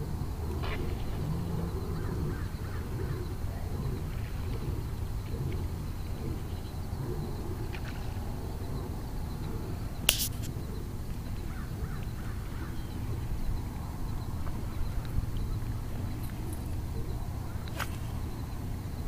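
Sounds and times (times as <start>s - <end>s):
low outdoor rumble: 0.0s - 19.0s
faint bird calls: 0.6s - 18.6s
sharp click: 10.1s - 10.5s.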